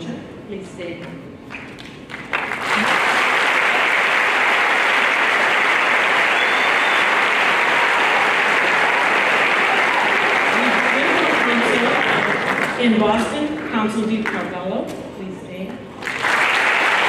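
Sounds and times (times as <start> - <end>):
audience applauding: 1.5 - 12.9, 16.0 - 17.0.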